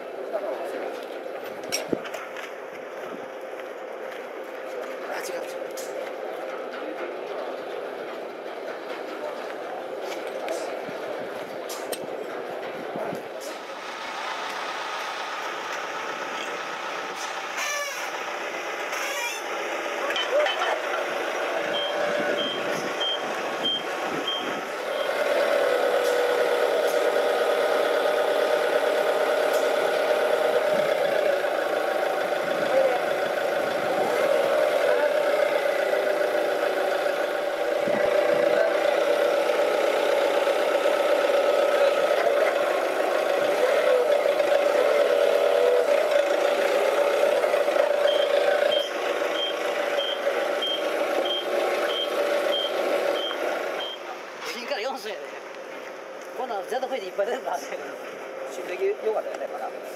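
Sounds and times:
forklift engine running: 0:00.0 - 0:54.4
reversing beeper: 0:21.7 - 0:25.2, 0:48.0 - 0:54.0.

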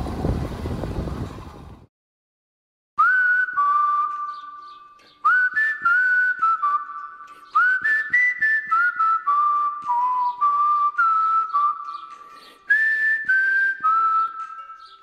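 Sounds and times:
person whistling a tune: 0:03.0 - 0:15.0.

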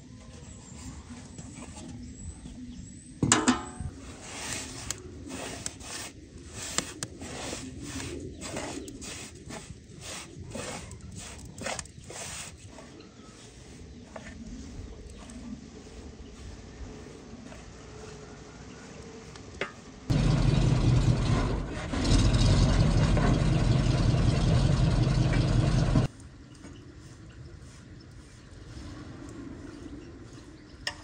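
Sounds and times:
ringing metal clang: 0:03.3 - 0:03.9
wooden spatula scraping metal basin: 0:03.4 - 0:16.0.

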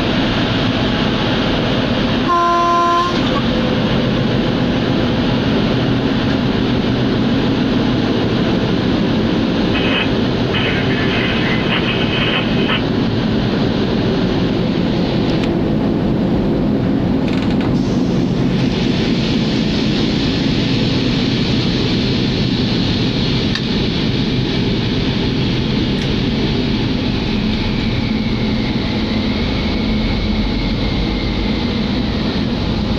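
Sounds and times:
locomotive engine and wheels rumble: 0:00.0 - 0:32.9.

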